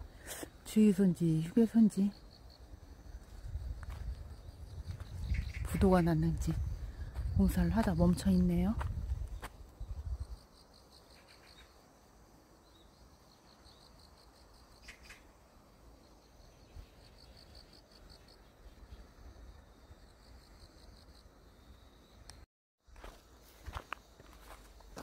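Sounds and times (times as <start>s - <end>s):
insect chirring in pulsed trills: 0.1s - 22.2s.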